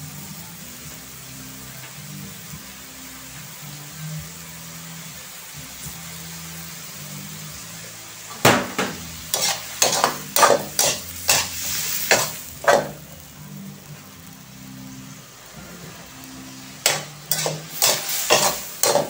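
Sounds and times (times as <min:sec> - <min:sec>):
shrimp sizzling in a wok: 0:00.0 - 0:19.0
metal spatula scraping a wok: 0:09.1 - 0:13.0, 0:16.5 - 0:19.0.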